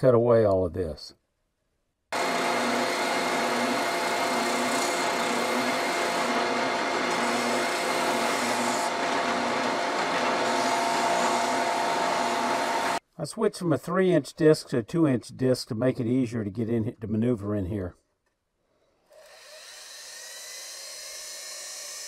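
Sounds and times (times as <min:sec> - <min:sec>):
electric power sander running: 0:02.2 - 0:13.0.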